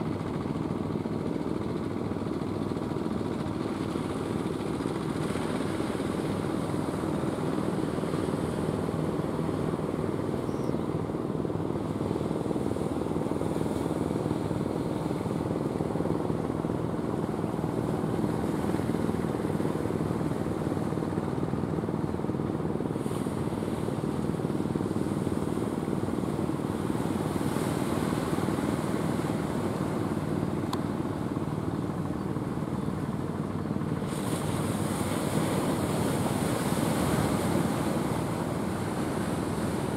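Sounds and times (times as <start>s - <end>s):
sea wash: 0.1s - 39.9s.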